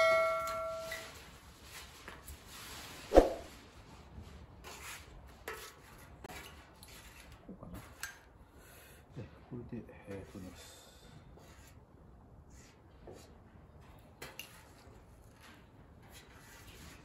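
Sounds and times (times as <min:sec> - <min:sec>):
sheet steel ringing: 0:00.0 - 0:01.2.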